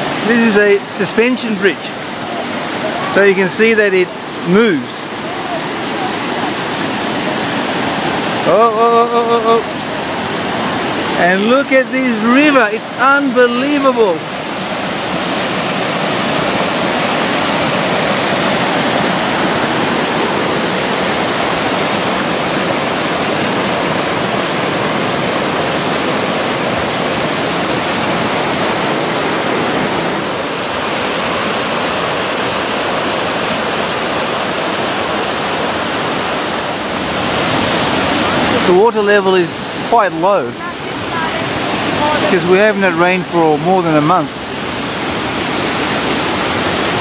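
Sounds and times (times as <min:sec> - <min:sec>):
river rushing over boulders: 0:00.0 - 0:47.0.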